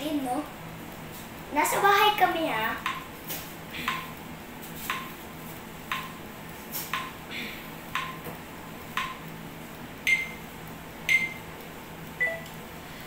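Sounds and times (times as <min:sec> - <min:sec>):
metronome clicks with beeps: 0:10.1 - 0:10.4, 0:11.1 - 0:11.4, 0:12.2 - 0:12.5.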